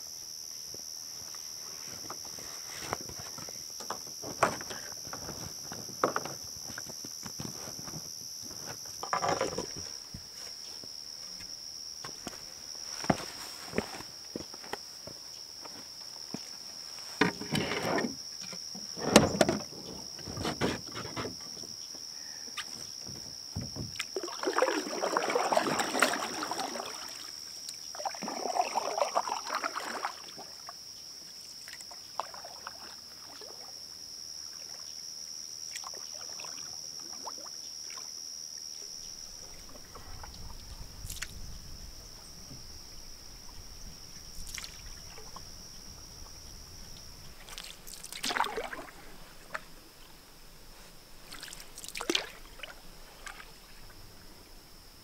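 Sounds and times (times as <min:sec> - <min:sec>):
knocks against canoe hull: 0:23.0 - 0:24.0
water sloshing and splashing: 0:23.6 - 0:30.7, 0:44.3 - 0:49.8, 0:51.2 - 0:54.2.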